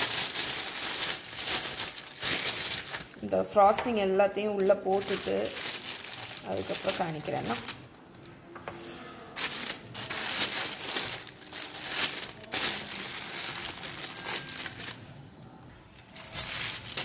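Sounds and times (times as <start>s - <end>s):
plastic piping bag crinkling: 0.0s - 8.2s, 9.4s - 15.2s, 16.0s - 17.0s.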